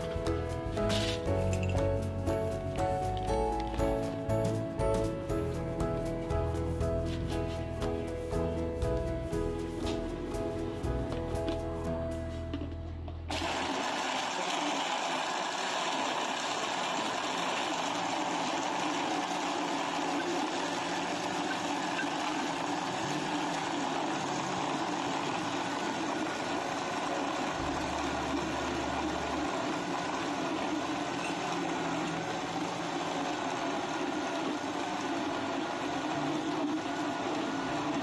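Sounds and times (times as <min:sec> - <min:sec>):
electric blender running: 0:13.3 - 0:38.0.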